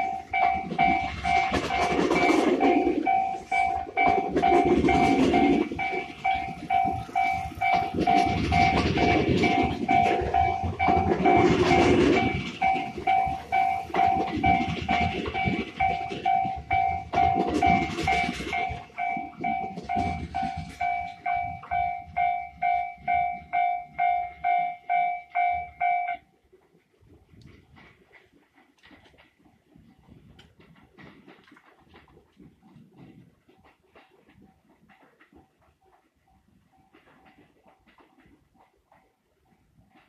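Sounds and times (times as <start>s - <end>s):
level crossing bell dinging: 0.0s - 26.2s
train wheels clattering over joints: 0.0s - 26.2s, 27.4s - 40.0s.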